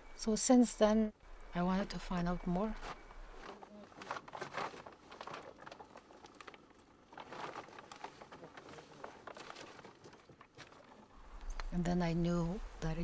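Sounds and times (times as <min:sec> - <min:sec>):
rustling of wet gear: 0:02.4 - 0:11.7.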